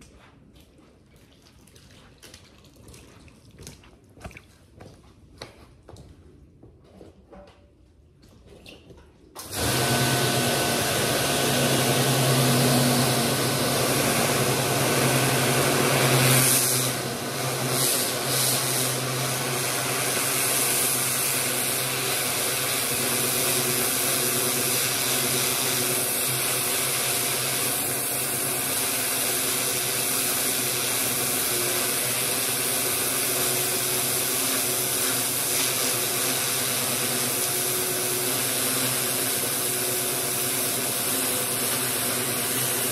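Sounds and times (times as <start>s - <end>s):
pressure washer motor humming: 9.4s - 42.9s
high-pressure water jet hissing: 9.5s - 42.9s.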